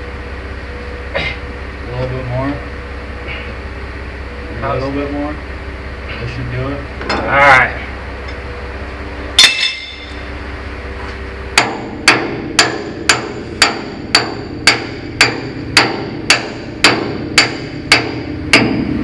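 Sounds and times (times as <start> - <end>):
hammer striking steel: 9.4 - 10.2, 11.6 - 19.0.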